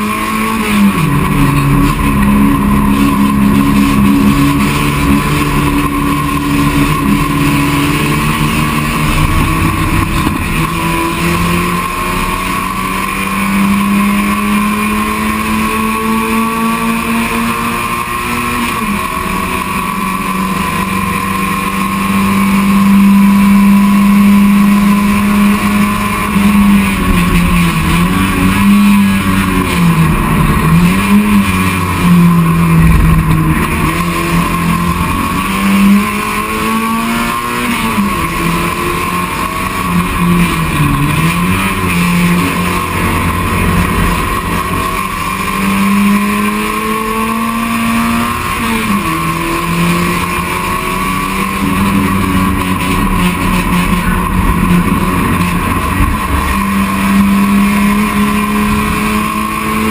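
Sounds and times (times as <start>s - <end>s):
race car engine at high revs: 0.0s - 59.9s.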